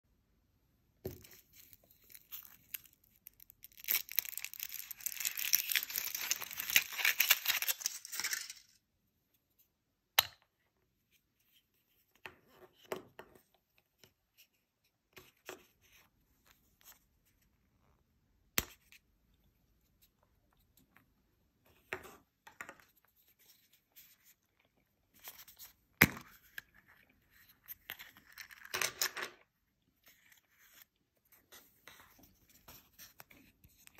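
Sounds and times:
foil wrapper crinkling and tearing: 1.9 - 8.8
chocolate shell cracking: 2.0 - 8.8.

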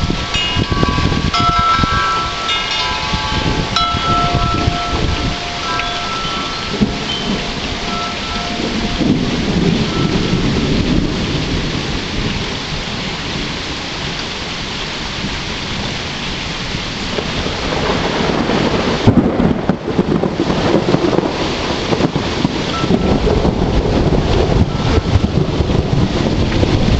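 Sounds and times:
rolling thunder: 0.0 - 14.1, 15.2 - 26.9
steady rain falling: 0.0 - 26.9
wind buffeting microphone: 0.0 - 26.9
wind chime ringing: 0.2 - 10.6, 22.8 - 23.2.

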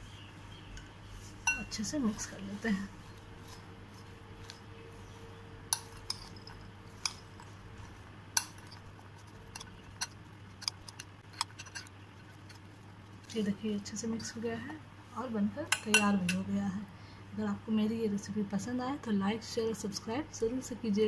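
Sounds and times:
spoon clinking against glass bowl: 1.5 - 1.7, 5.7 - 7.5.

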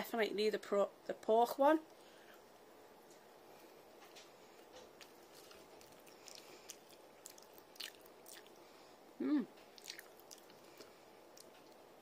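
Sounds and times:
mouth chewing clicks and smacks: 4.9 - 8.6, 9.6 - 11.8
person humming mm: 9.2 - 9.6.

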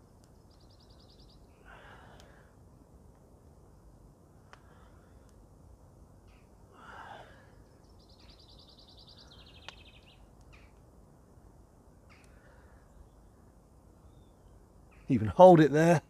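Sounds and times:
lower bird call: 0.5 - 2.3, 6.2 - 10.8
faint clicks: 2.1 - 2.4, 4.4 - 5.4, 9.6 - 10.9, 12.1 - 12.6.

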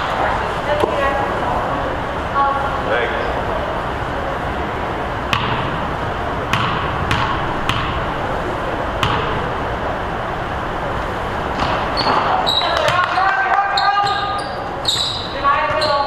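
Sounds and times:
steady background noise: 0.0 - 16.0
basketball bouncing on gym floor: 5.3 - 5.8, 6.5 - 8.1, 9.0 - 9.4, 11.6 - 16.0.

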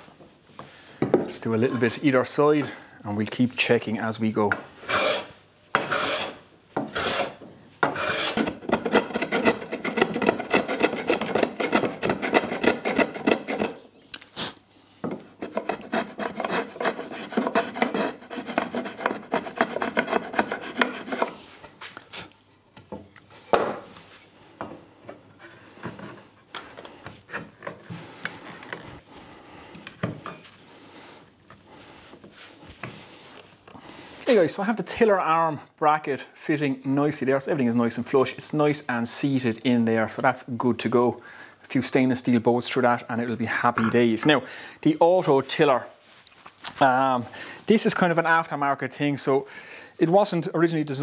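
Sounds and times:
hand plane shaving wood: 4.9 - 13.8, 15.4 - 21.4.

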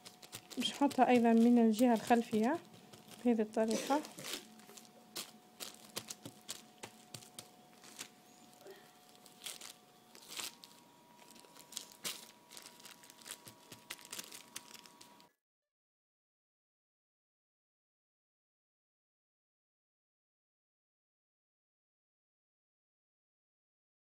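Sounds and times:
plastic sheet crinkling: 0.0 - 15.3.

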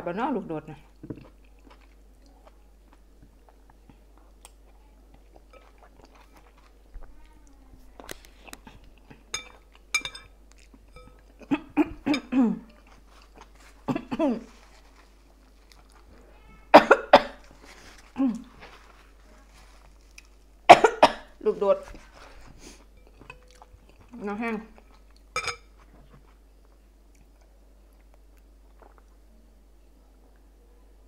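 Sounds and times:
person chewing: 0.8 - 16.2, 17.1 - 20.7, 21.9 - 29.2
spoon clinking against glass bowl: 9.3 - 10.3, 10.9 - 11.2, 25.4 - 25.7
person coughing: 13.9 - 14.5, 16.7 - 17.4, 20.7 - 21.3.

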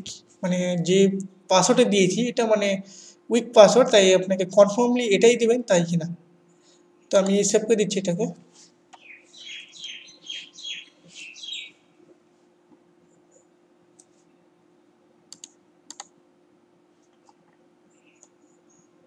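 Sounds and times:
bird chirping: 9.0 - 11.8.

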